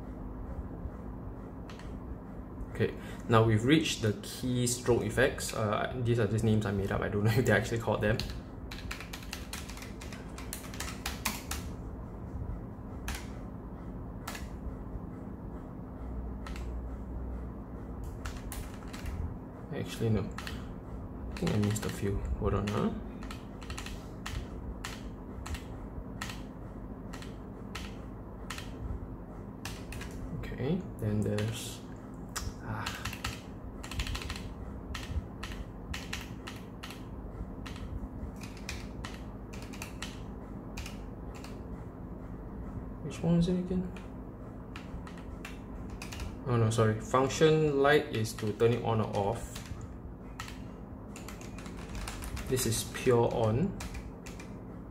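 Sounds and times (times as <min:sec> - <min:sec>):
mechanical keyboard key presses: 0:22.6 - 0:25.6, 0:32.9 - 0:37.0.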